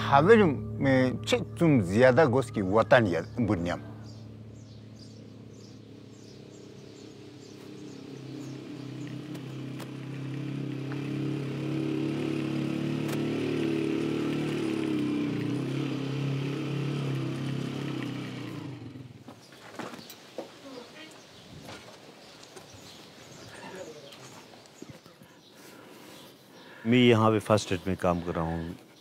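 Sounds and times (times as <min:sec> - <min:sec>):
small motorcycle engine approaching: 0:00.0 - 0:19.4.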